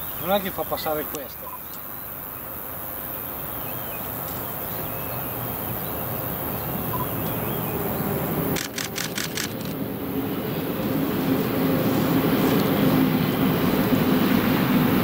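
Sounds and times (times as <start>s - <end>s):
faint bird chirps: 0.0s - 2.5s, 6.8s - 8.0s.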